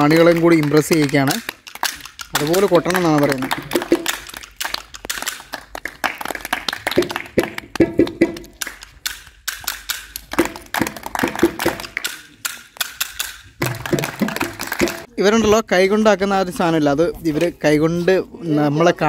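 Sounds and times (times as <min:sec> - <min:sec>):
hand percussion clacks and taps: 0:00.0 - 0:15.1.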